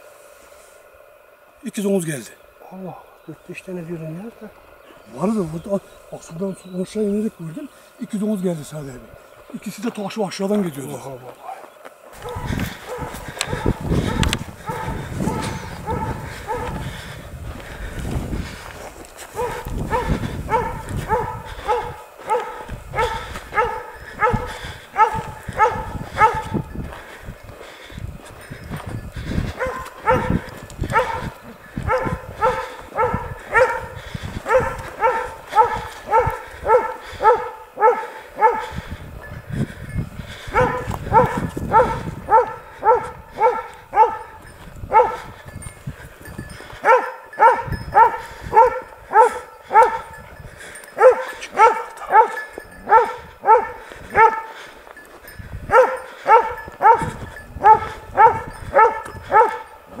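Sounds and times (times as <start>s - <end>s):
dog barking: 11.4s - 16.9s, 19.4s - 26.7s, 29.6s - 38.9s, 40.5s - 45.4s, 46.8s - 50.2s, 51.0s - 54.7s, 55.7s - 60.0s.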